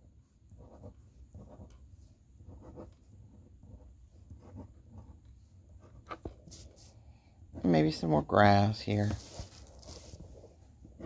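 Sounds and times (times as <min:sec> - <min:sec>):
pencil scratching on paper: 0:00.0 - 0:07.0, 0:09.0 - 0:11.0.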